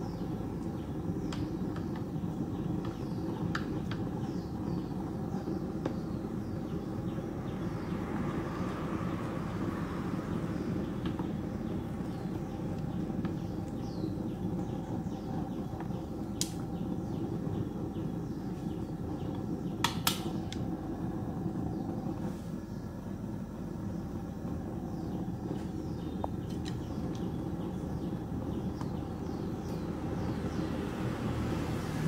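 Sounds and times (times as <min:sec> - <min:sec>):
pot boiling on stove: 0:00.0 - 0:32.0
sharp clicks: 0:19.8 - 0:20.6.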